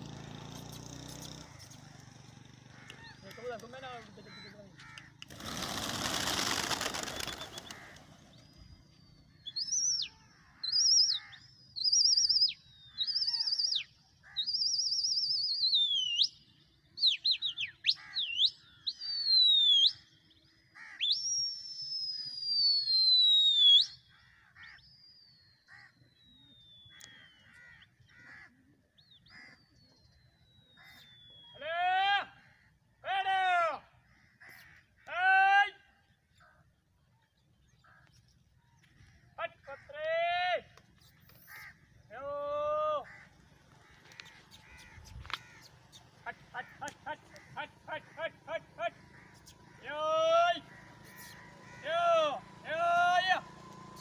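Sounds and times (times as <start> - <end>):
pigeon wings flapping: 5.0 - 8.5.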